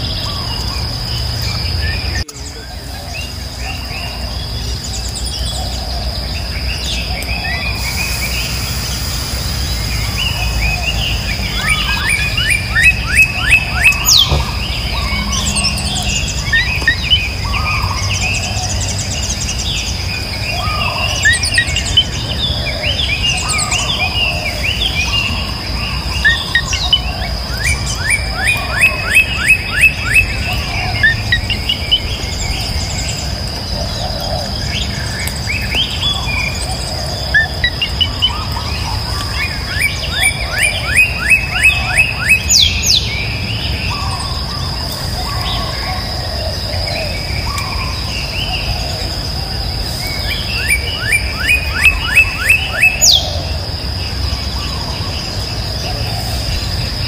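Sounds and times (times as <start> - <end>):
birds chirping: 0.0 - 57.0
insects droning: 0.0 - 57.0.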